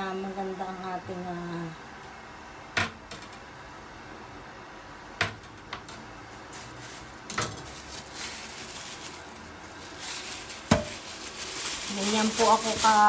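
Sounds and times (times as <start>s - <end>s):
kitchen items knocking: 10.6s - 11.1s.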